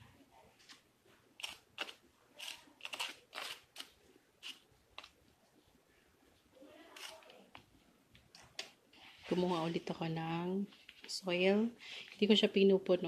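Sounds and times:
plastic spoon scraping potting soil: 0:09.2 - 0:10.1.

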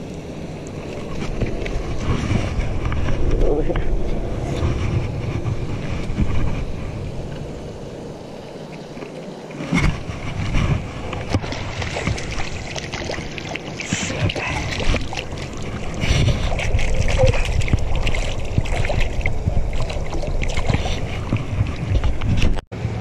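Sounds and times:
wind rumbling on microphone: 0:00.0 - 0:23.0
fish splashing in water: 0:11.0 - 0:22.2.

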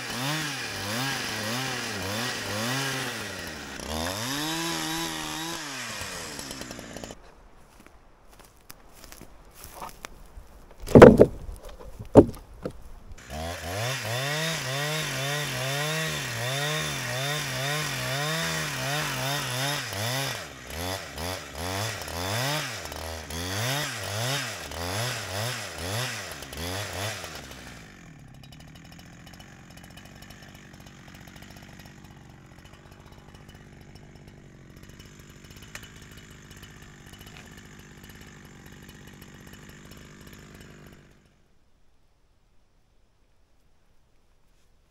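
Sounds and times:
chainsaw cutting log: 0:00.0 - 0:07.2, 0:10.8 - 0:41.4
wooden slab knocking: 0:10.7 - 0:12.8.

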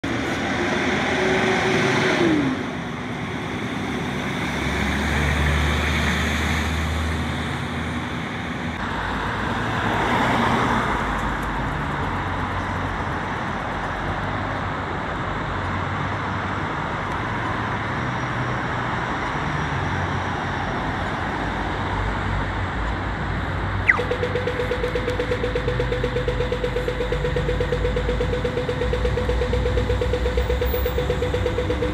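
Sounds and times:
cars passing: 0:00.0 - 0:31.9
diesel locomotive engine rumble: 0:24.5 - 0:31.9.

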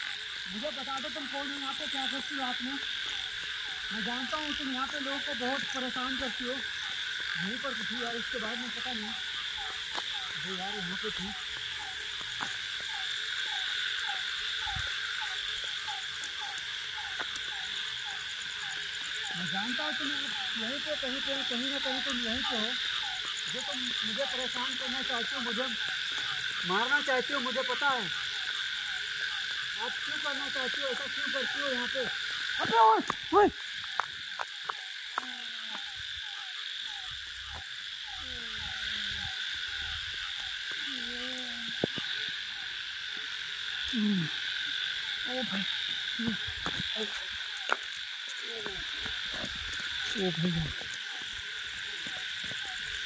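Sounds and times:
frog calling: 0:00.0 - 0:53.0
high insect drone: 0:00.0 - 0:53.0.

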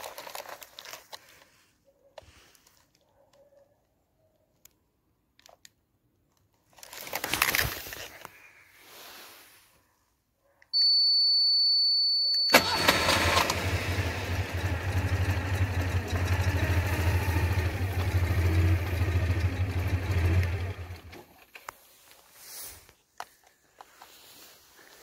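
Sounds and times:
car engine running: 0:12.6 - 0:21.1.

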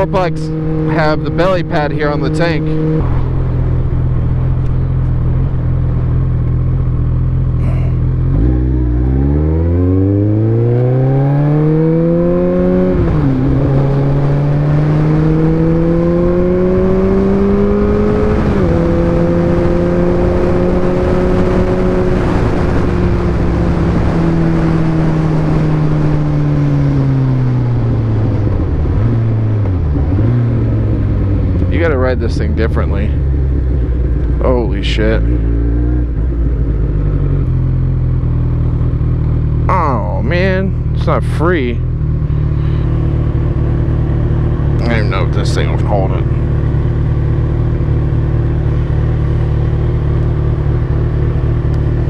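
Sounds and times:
motorcycle engine revving: 0:00.0 - 0:52.0.

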